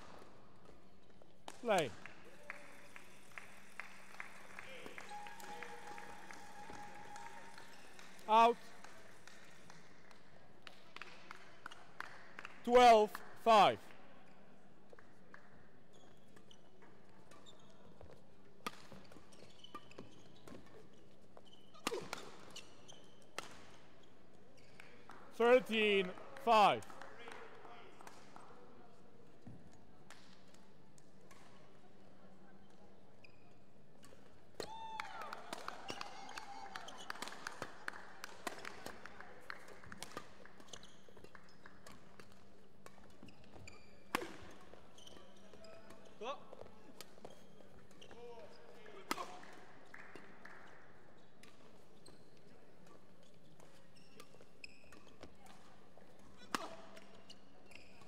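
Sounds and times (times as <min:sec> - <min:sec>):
shoes squeaking on court floor: 0:15.9 - 0:23.3, 0:40.6 - 0:48.8, 0:51.6 - 0:58.0.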